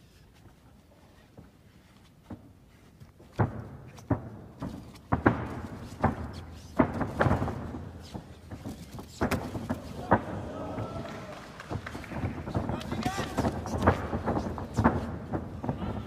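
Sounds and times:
sharp smacks and body thuds: 0:03.0 - 0:10.3.

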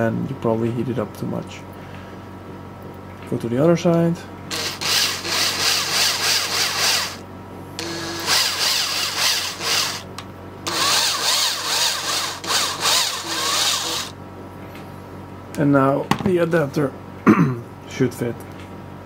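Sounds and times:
electric drill boring plastic: 0:04.5 - 0:07.2, 0:07.8 - 0:14.2.

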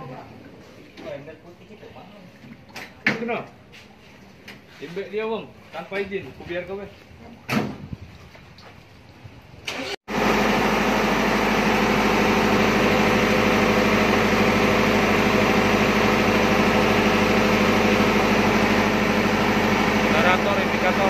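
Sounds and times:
diesel generator engine running: 0:09.7 - 0:21.0.

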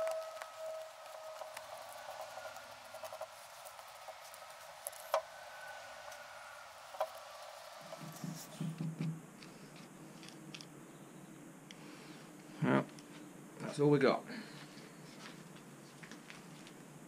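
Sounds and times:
card spreader scraping and patting: 0:00.0 - 0:05.3.

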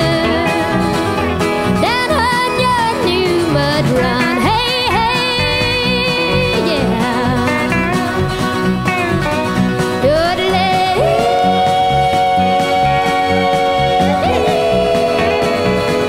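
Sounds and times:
person singing country song: 0:00.0 - 0:16.0
steady bass beat: 0:03.5 - 0:16.0.

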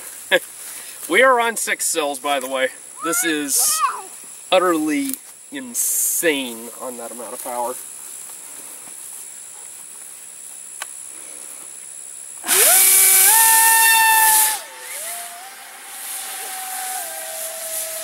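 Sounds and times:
model plane motor whining: 0:12.4 - 0:18.0.

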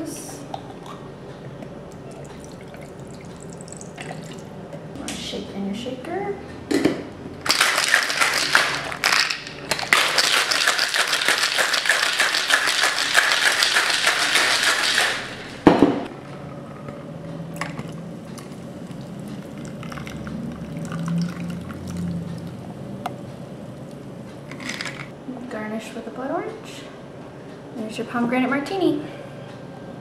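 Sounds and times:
ice rattling in cocktail shaker: 0:07.5 - 0:15.5
drink pouring into glass: 0:17.8 - 0:22.2.

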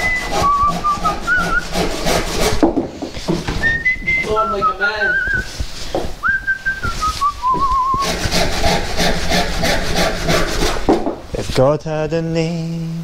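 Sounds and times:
man whistling a tune: 0:00.0 - 0:01.7, 0:03.6 - 0:05.5, 0:06.2 - 0:08.0
rhythmic scraping strokes: 0:00.0 - 0:12.9.

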